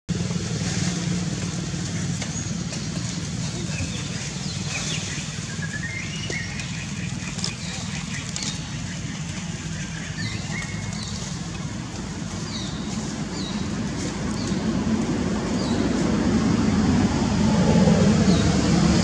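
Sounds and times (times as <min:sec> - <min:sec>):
low rumble: 0:08.4 - 0:19.0.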